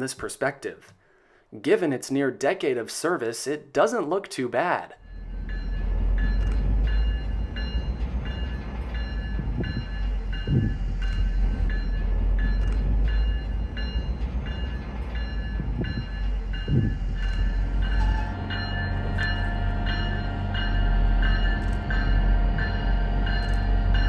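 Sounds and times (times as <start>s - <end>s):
bell ringing: 5.0s - 24.0s
diesel locomotive engine rumbling: 5.0s - 24.0s.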